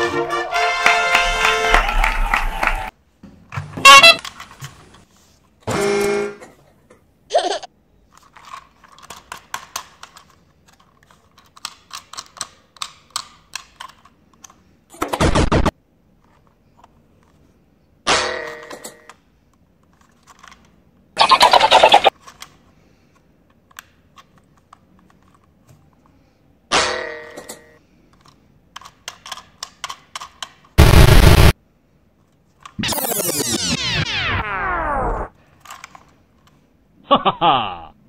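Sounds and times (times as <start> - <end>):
short honk-like tones: 3.8 - 4.3
plastic toy train clicking: 8.1 - 14.6, 28.1 - 30.8.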